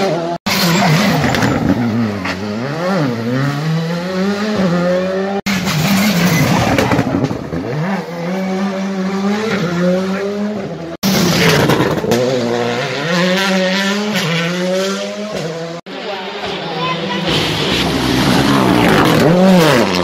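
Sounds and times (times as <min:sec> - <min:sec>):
rally cars accelerating past: 0:00.0 - 0:20.0
tyres skidding: 0:00.5 - 0:20.0.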